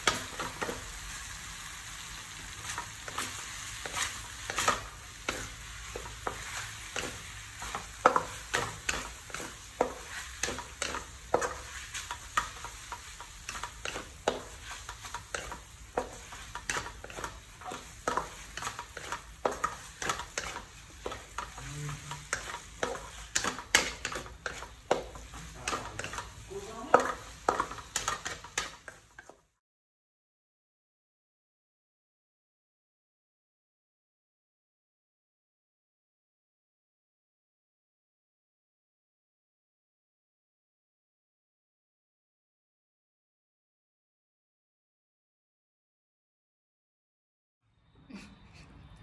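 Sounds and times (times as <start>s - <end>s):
spatula scraping a metal wok: 0.0s - 29.5s
steady sizzle: 0.0s - 29.6s.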